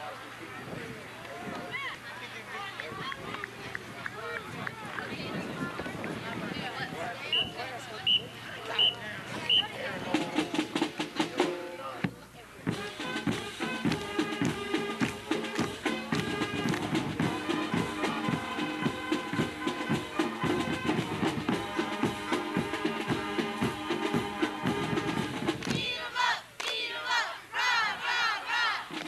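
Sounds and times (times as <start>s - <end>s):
marching band brass: 6.2s - 12.0s, 12.6s - 29.0s
marching band drum beat: 7.4s - 26.1s, 28.0s - 29.0s
voices shouting: 25.8s - 29.0s.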